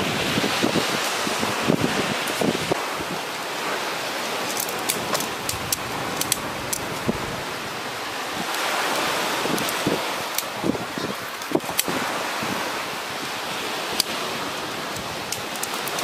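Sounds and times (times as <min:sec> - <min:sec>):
surf: 0:00.0 - 0:16.0
wind noise: 0:00.0 - 0:16.0
tent poles clicking together: 0:04.3 - 0:07.2, 0:08.5 - 0:12.0, 0:13.9 - 0:14.2, 0:14.9 - 0:16.0.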